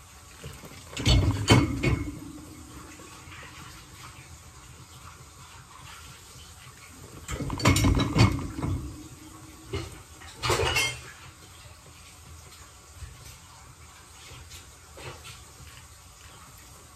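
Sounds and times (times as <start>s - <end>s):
ceramic dishes clattering: 0.9s - 2.3s, 7.3s - 9.1s, 9.7s - 11.1s.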